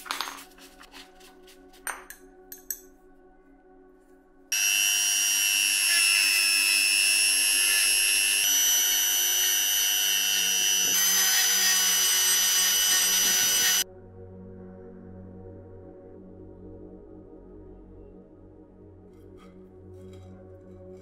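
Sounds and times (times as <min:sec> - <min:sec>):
rotary tool grinding metal: 0:04.5 - 0:13.8.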